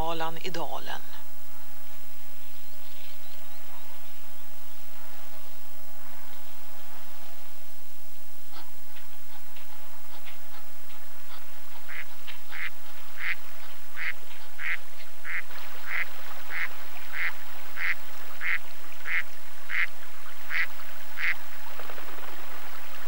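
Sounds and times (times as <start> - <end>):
ducks quacking: 8.3 - 23.0.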